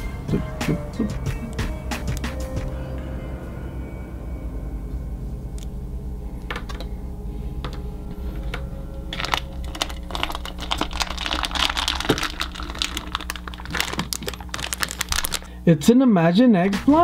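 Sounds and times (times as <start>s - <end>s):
soft background music: 0.0s - 17.0s
plastic wrapper crinkling: 8.3s - 15.6s.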